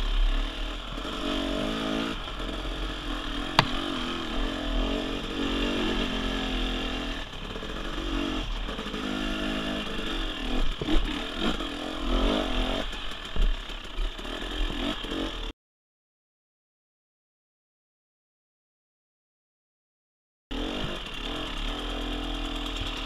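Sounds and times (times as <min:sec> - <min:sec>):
dirt bike engine revving: 0:00.0 - 0:15.5, 0:20.5 - 0:23.0
bike knocking over bumps: 0:03.5 - 0:04.2, 0:10.7 - 0:11.2.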